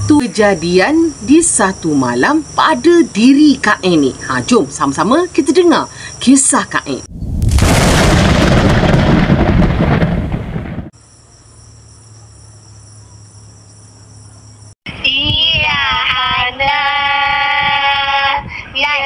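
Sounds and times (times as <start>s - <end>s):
thunder rumbling: 7.1s - 10.9s.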